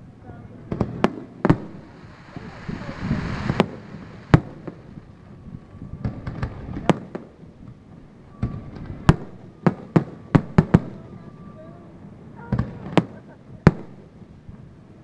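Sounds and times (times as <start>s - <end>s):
fireworks bursting: 0.7s - 7.2s
low rumble: 1.5s - 6.1s.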